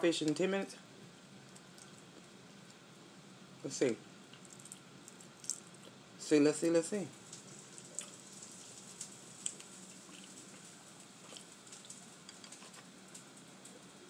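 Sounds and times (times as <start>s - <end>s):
shells cracking and crackling: 4.4s - 5.7s.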